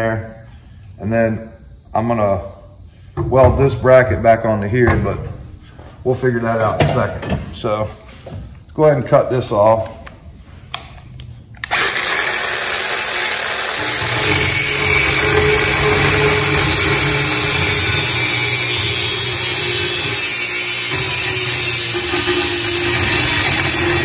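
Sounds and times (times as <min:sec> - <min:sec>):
angle grinder cutting steel: 0:11.6 - 0:24.0.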